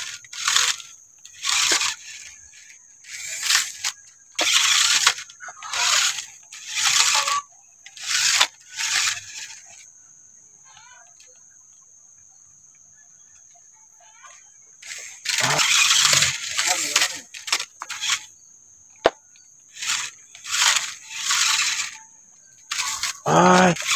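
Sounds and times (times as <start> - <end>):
rc truck motor and gears whining: 0.0 - 23.9
tyres scrabbling on loose soil: 14.8 - 18.3, 19.0 - 23.9.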